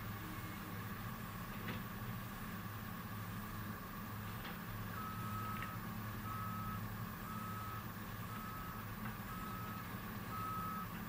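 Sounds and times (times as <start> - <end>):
diesel engines droning: 0.0 - 11.0
backup alarm beeping: 5.0 - 10.9.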